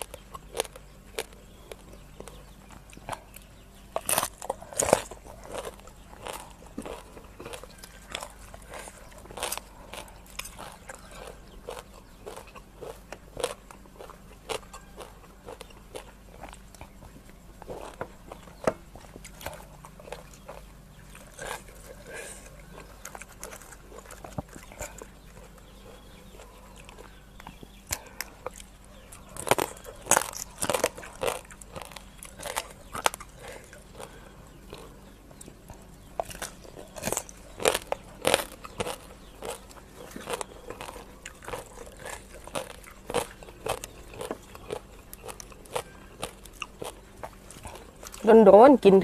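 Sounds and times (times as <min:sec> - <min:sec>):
crab shell crunching: 0:00.0 - 0:48.3.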